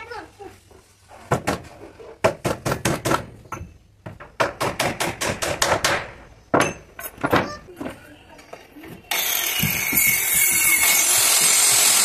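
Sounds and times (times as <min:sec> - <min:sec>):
hammer driving nails into wood: 0:04.2 - 0:06.8.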